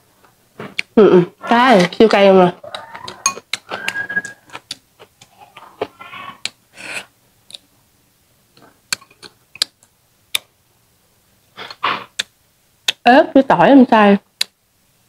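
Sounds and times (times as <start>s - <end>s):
soft murmur: 5.1s - 7.1s
breathy puff: 11.6s - 12.2s.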